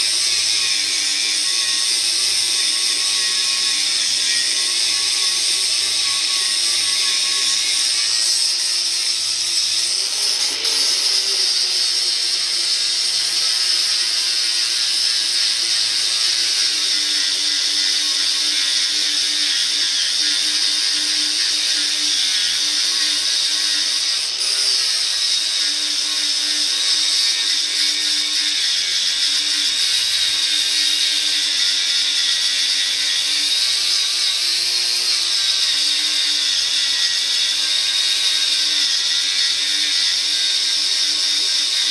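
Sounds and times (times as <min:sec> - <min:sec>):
angle grinder grinding metal: 0:00.0 - 0:41.9.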